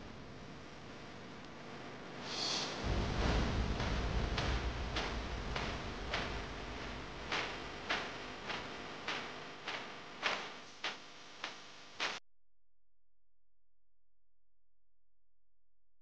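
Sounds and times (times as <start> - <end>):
soft hiss: 2.1 - 12.2
steady ticking beat: 2.8 - 10.4.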